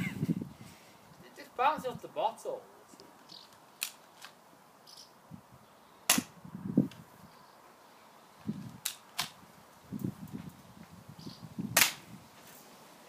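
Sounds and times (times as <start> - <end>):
bb pistol shot crack: 6.1 - 6.3, 11.8 - 12.0.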